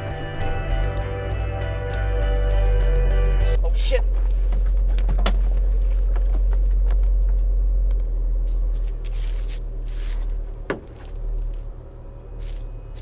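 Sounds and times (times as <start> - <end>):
car cabin rumble: 0.0 - 13.0.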